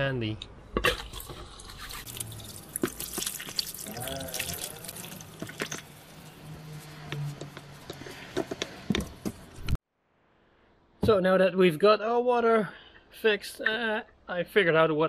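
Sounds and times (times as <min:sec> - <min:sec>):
water running into a sink: 0:02.0 - 0:05.9.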